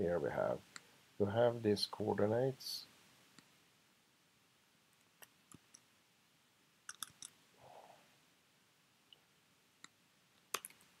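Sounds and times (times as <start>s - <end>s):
computer mouse and keyboard clicks: 6.9s - 7.4s, 9.8s - 10.9s.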